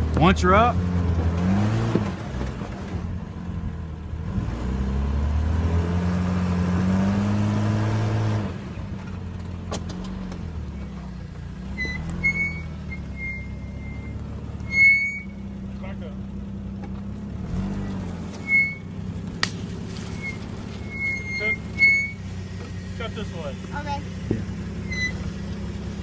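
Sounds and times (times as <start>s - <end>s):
engine revving and idling: 0.0s - 26.0s.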